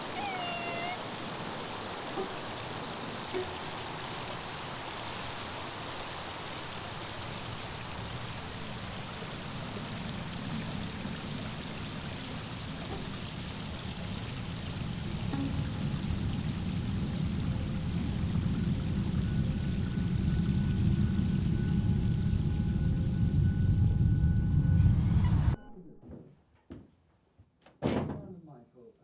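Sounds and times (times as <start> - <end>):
flowing water rushing: 0.0 - 21.2
deep rumble: 12.7 - 25.7.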